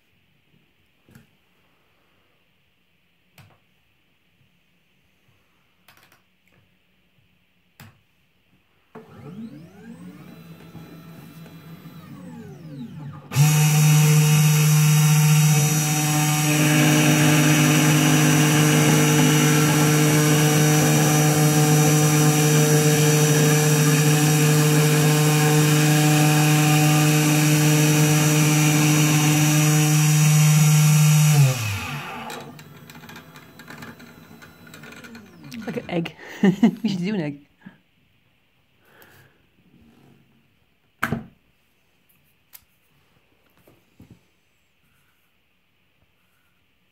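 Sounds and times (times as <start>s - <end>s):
stepper motors whining: 9.1s - 35.9s
spindle motor running loud: 9.2s - 35.9s
bit drilling into plastic ball: 10.3s - 35.9s.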